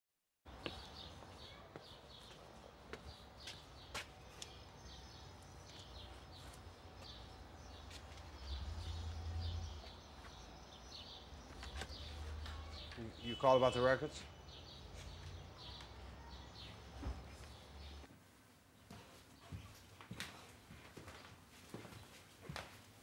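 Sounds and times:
small birds chirping: 0.5s - 18.1s.

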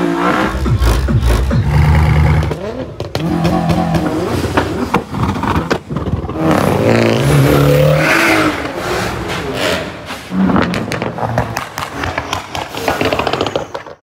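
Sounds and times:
car engine revving: 0.0s - 12.4s
exhaust crackling pops: 10.1s - 14.0s.

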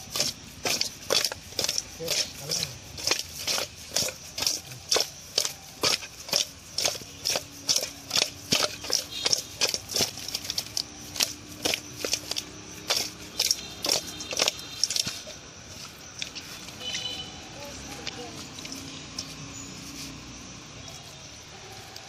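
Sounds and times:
wet fish slapping metal bowl: 0.0s - 17.0s.

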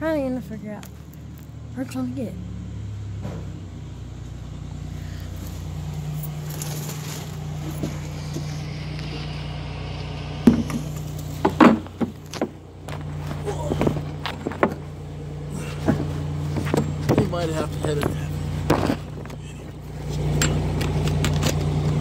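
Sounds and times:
low mechanical hum: 0.0s - 22.0s
rubbing noises: 5.3s - 9.4s
sharp knocks: 10.4s - 13.0s, 15.8s - 19.4s.

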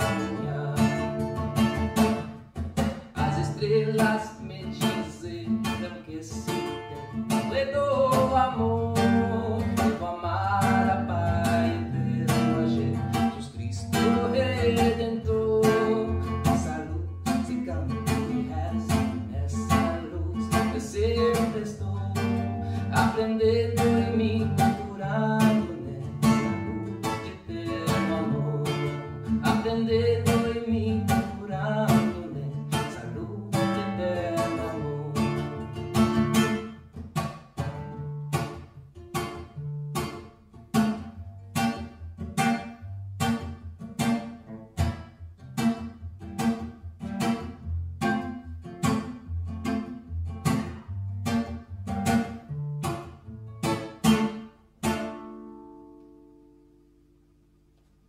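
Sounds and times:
man singing: 0.0s - 2.2s, 3.0s - 35.8s
acoustic guitar strumming: 0.0s - 58.0s.

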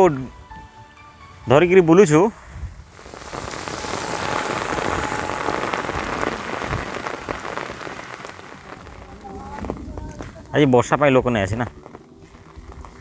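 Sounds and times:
heavy rain on pavement: 3.0s - 13.0s.

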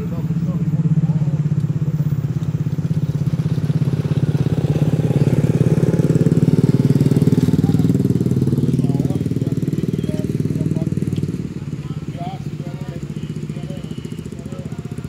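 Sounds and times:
engine throbbing: 0.0s - 15.0s.

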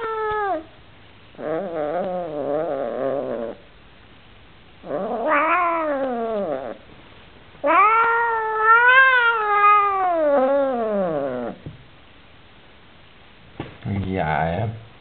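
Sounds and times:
cat yowling: 0.0s - 0.8s, 1.4s - 3.6s, 4.8s - 6.8s, 7.6s - 11.6s.

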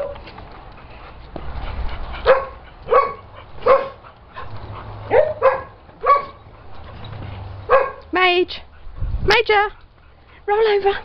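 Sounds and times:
dog barking: 2.2s - 4.0s, 5.1s - 6.4s, 7.7s - 8.1s.

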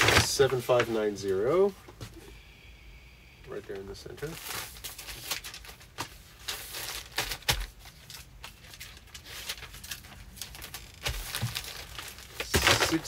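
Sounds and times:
plastic and paper crinkling: 3.7s - 13.0s.

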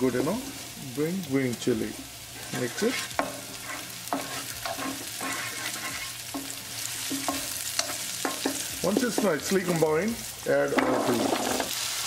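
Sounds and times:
food sizzling in oil: 0.0s - 12.0s
spatula scraping and knocking pan: 2.5s - 9.6s, 10.7s - 11.8s.

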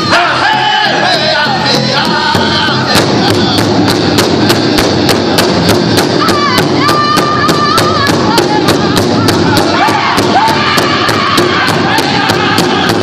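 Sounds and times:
group singing in unison: 0.0s - 3.8s, 9.5s - 13.0s
large drum beating: 0.4s - 13.0s.

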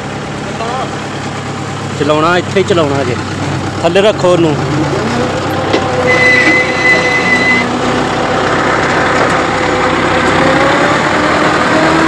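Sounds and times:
tractor engine running: 0.0s - 12.0s
thin high whine: 6.0s - 7.7s.

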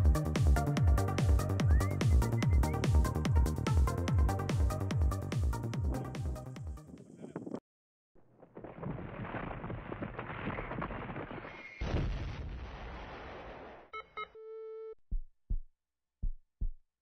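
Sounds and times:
low heartbeat-like thumps: 15.1s - 16.8s.

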